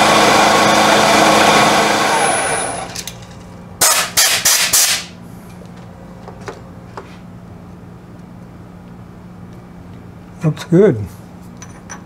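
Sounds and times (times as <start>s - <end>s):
milling machine humming: 0.0s - 3.0s.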